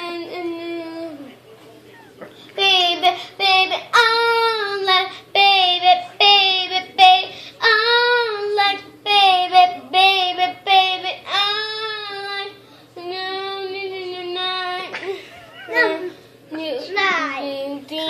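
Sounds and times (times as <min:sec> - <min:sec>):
girl singing: 0:00.0 - 0:01.3, 0:02.6 - 0:18.0.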